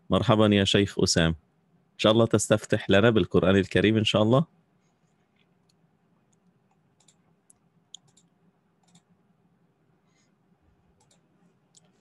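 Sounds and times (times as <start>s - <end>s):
computer clicks: 5.4s - 9.1s, 11.0s - 12.0s.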